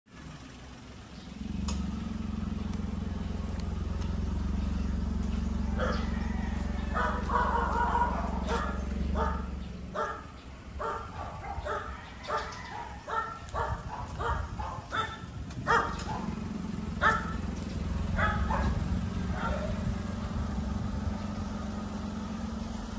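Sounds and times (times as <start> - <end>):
dog barking: 5.7 - 16.4, 17.0 - 17.4, 18.1 - 19.9.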